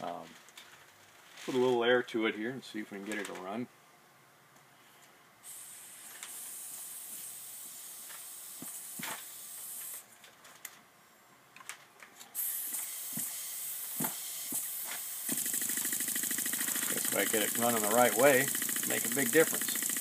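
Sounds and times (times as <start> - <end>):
compressed air hissing from engine: 5.4 - 10.0, 12.4 - 20.0
flywheel clicks: 15.3 - 20.0.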